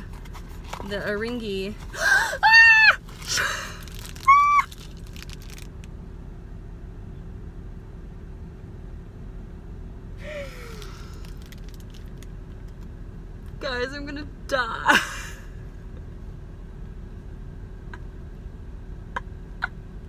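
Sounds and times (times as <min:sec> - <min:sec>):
low hum inside car: 0:00.0 - 0:20.0
woman gasping: 0:01.9 - 0:02.5, 0:10.2 - 0:11.2
woman shrieking with delight: 0:02.1 - 0:03.0.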